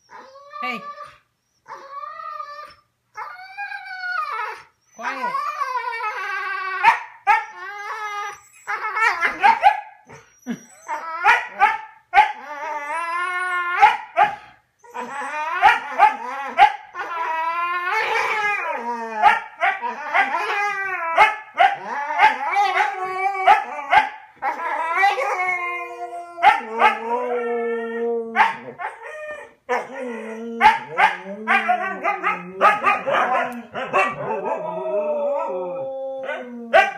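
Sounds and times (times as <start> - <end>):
dogs barking and yipping: 6.8 - 7.6, 8.3 - 12.4, 13.8 - 17.2, 19.1 - 25.4, 26.4 - 27.2, 28.4 - 35.5, 36.2 - 36.9.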